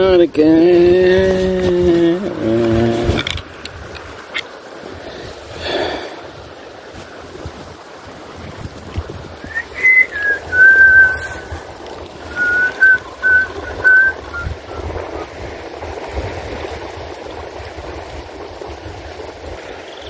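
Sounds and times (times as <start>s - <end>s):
rushing water: 0.0s - 20.0s
wind: 0.0s - 20.0s
person whistling a slow tune: 9.4s - 11.6s, 12.2s - 14.8s.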